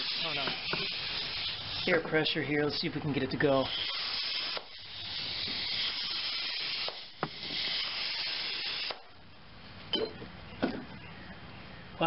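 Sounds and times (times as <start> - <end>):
compressed air hissing into tire: 0.0 - 2.0, 3.6 - 9.0.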